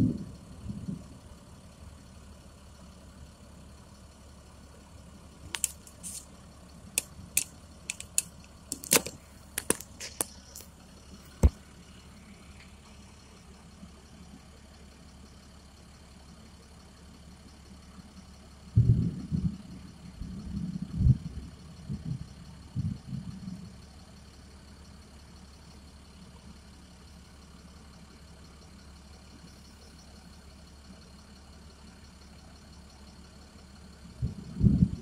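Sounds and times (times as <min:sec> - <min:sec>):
idling vehicle hum: 0:00.0 - 0:35.0
sharp clicks and taps: 0:05.5 - 0:06.2, 0:07.0 - 0:10.7.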